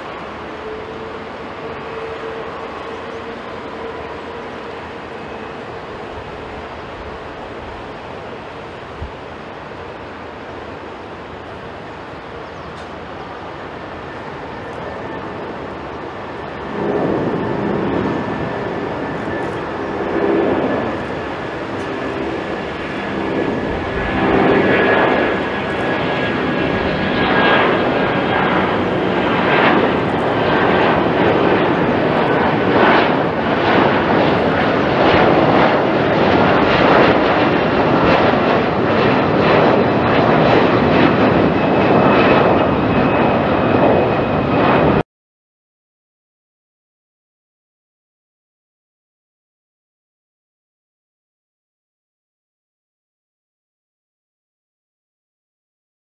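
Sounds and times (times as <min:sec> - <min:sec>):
jet engines roaring overhead: 0:00.0 - 0:45.0
jet engine high whine: 0:00.0 - 0:45.1
loud crackling rumble: 0:14.7 - 0:45.0.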